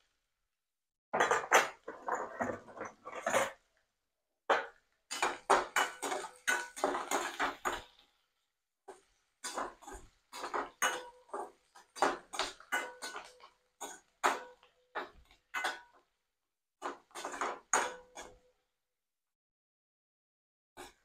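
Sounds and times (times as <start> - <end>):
metal spatula scraping steel pan: 1.2 - 3.6, 5.1 - 8.0, 8.9 - 15.8, 16.8 - 18.4
onions frying in oil: 5.1 - 8.2, 8.9 - 15.8.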